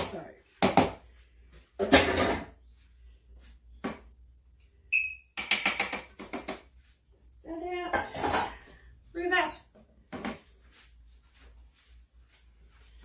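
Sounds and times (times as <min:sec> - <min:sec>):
plastic kitchenware clatter: 0:01.8 - 0:02.6.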